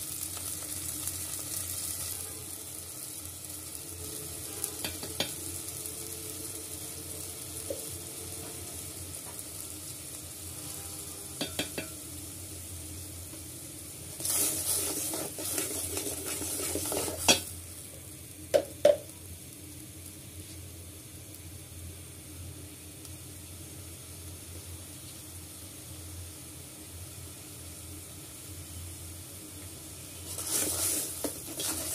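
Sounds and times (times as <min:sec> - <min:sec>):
spices sizzling in hot oil: 0:00.0 - 0:31.9
spatula stirring and scraping: 0:14.2 - 0:17.5, 0:30.2 - 0:31.9.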